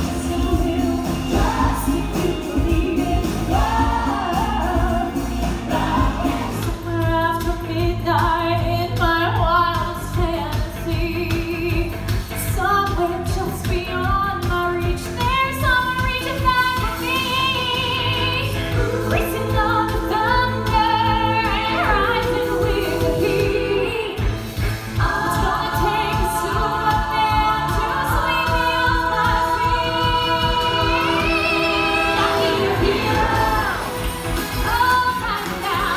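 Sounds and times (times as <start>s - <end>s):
woman singing: 0.0s - 24.3s, 25.0s - 35.9s.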